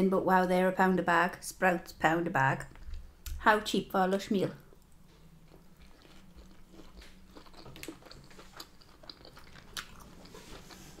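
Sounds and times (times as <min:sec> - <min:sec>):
person chewing food: 0:04.7 - 0:11.0.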